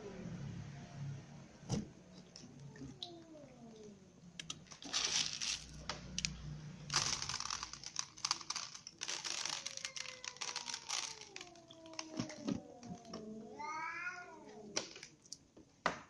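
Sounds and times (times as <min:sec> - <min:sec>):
cats chewing and licking: 0:07.0 - 0:13.6.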